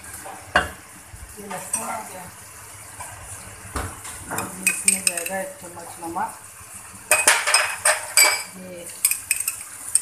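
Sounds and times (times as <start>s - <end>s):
spoon clinking against metal pot: 4.6s - 5.5s, 7.1s - 10.0s.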